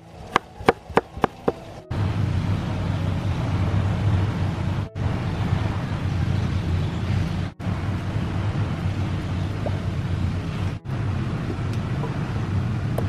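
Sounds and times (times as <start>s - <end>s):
low hum: 0.0s - 13.0s
cleaver chopping on wooden board: 0.3s - 1.6s.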